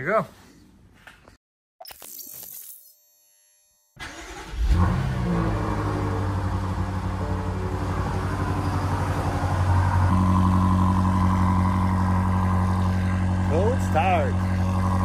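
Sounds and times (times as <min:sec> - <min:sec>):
car engine idling: 0:04.0 - 0:15.0.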